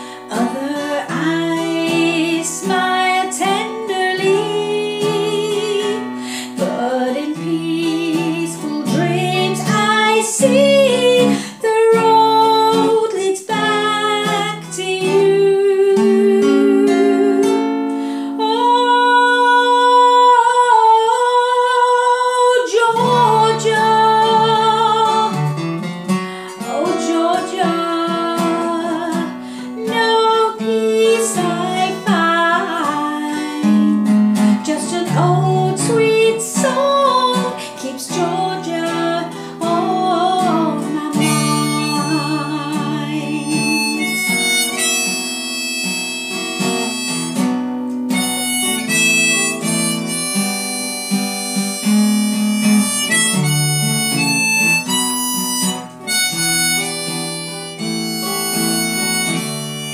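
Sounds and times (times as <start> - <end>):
harmonica: 0.0 - 15.2, 22.6 - 59.9
woman singing: 0.0 - 25.6, 26.2 - 47.2
strummed acoustic guitar: 0.0 - 59.9.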